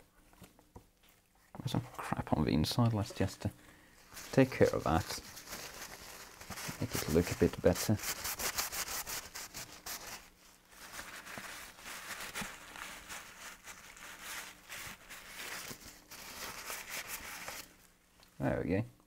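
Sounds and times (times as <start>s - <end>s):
cloth scrubbing plastic cover: 4.0s - 17.8s.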